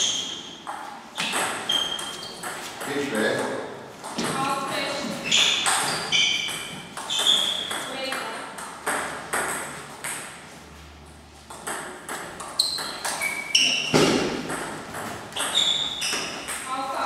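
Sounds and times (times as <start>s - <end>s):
high squeaks: 1.2s - 2.6s, 4.7s - 8.0s, 12.4s - 14.0s, 15.3s - 16.6s.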